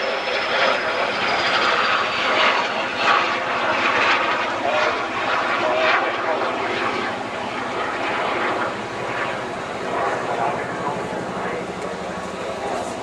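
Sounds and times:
jet aircraft flying past: 0.0s - 13.0s.

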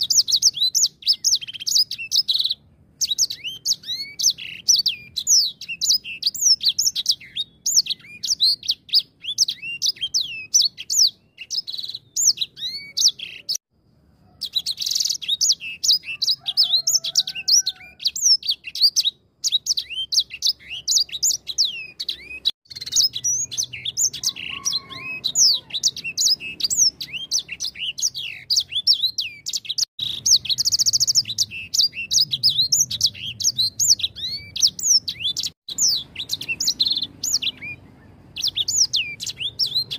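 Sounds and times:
finch twittering song: 0.0s - 13.6s, 14.3s - 39.9s.

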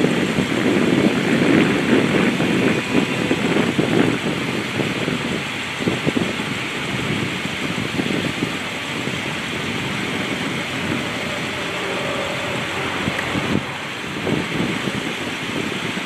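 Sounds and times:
wind on microphone: 0.0s - 16.0s
car engine idling: 0.1s - 16.0s
roof mechanism whine: 8.6s - 15.8s.

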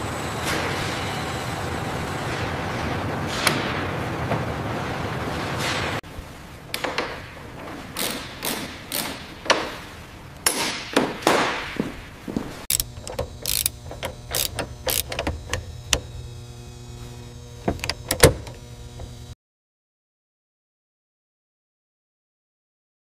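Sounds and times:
metallic clicks of hand tools: 8.0s - 9.2s, 12.7s - 16.0s
steady low hum: 12.7s - 19.4s.

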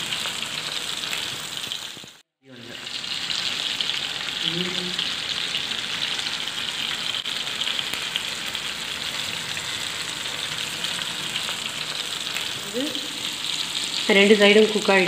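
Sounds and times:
fish sizzling in hot oil: 0.0s - 15.0s.

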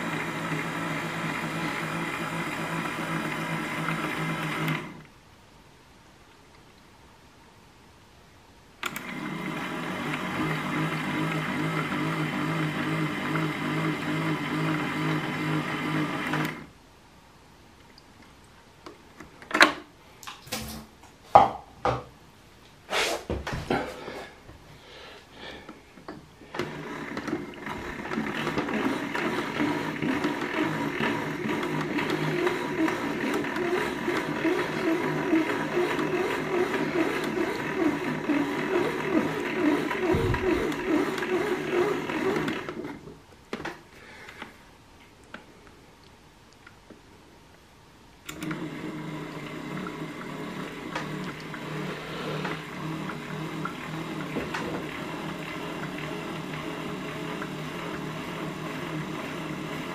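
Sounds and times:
toy washing machine motor humming: 0.0s - 5.0s, 8.8s - 16.7s, 26.6s - 43.0s, 48.3s - 59.9s.

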